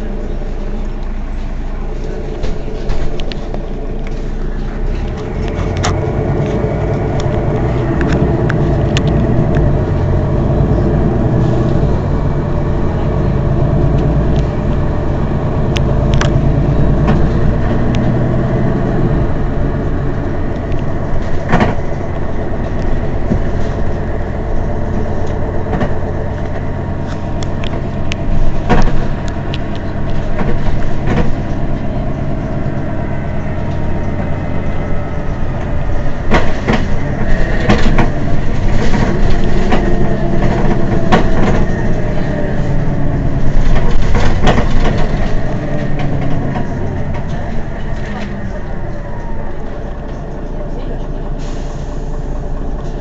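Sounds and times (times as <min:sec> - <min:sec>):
bus engine idling: 0:00.0 - 0:53.0.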